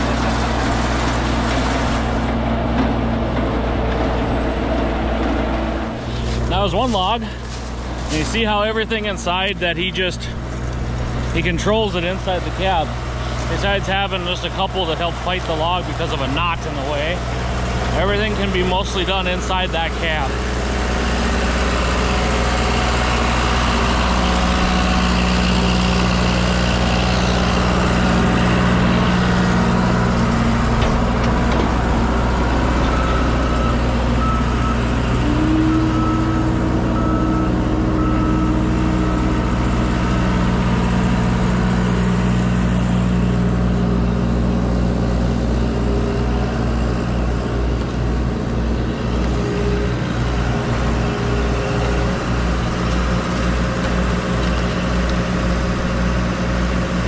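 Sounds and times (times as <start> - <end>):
tractor engine running under load: 0.0 - 57.0.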